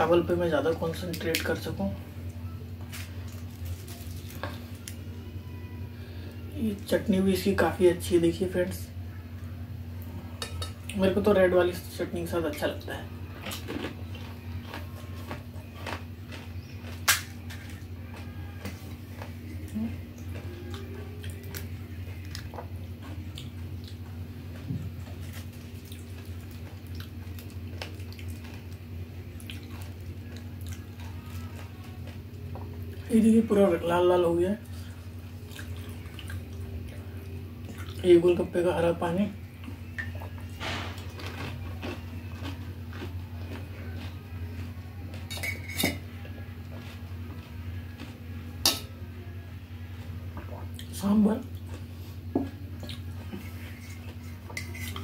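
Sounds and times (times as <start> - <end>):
steady low hum: 0.0 - 55.0
crisp shells cracking: 2.9 - 5.0, 13.4 - 17.8
wet squishes of chewing: 13.3 - 33.0, 34.6 - 38.0, 39.6 - 45.2, 50.3 - 52.0, 52.7 - 55.0.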